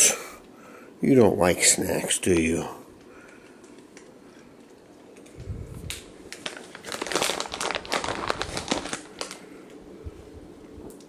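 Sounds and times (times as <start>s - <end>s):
plastic snack bag crinkling: 3.3s - 9.8s.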